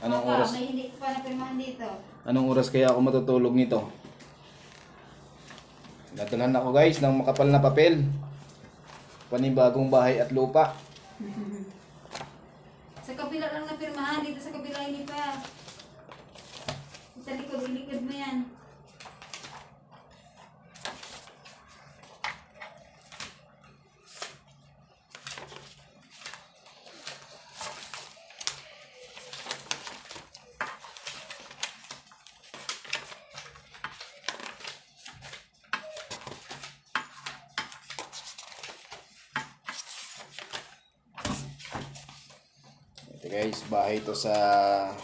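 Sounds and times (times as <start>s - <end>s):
paper sheets rustling: 2.4s - 45.0s
paper tapping on tabletop: 35.2s - 38.2s, 39.3s - 39.8s.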